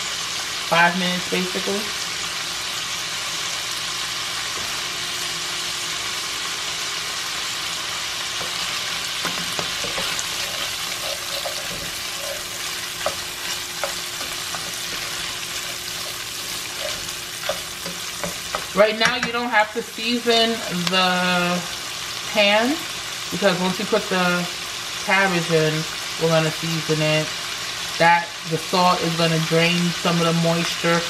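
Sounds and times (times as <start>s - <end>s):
sausage and onions sizzling: 0.0s - 31.0s
spoon scraping a pan: 8.4s - 19.3s.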